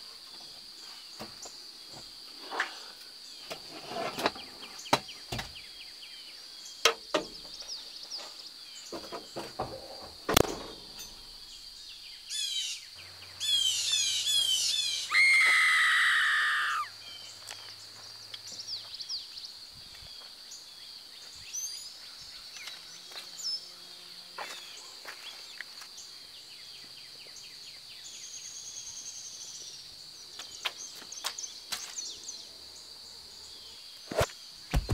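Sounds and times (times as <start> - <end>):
insect drone: 0.0 - 34.9
birds chirping: 11.0 - 23.7.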